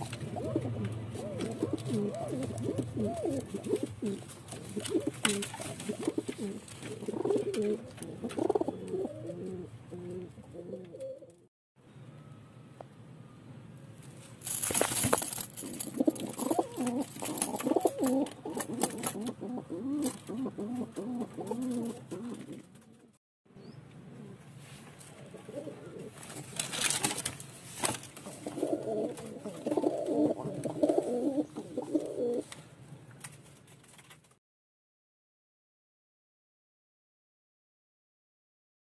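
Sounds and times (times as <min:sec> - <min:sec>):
pigeons cooing: 0:00.0 - 0:11.4, 0:15.6 - 0:23.1, 0:24.0 - 0:24.5, 0:25.2 - 0:26.6, 0:28.2 - 0:32.5
scratchy rustling: 0:14.1 - 0:19.2.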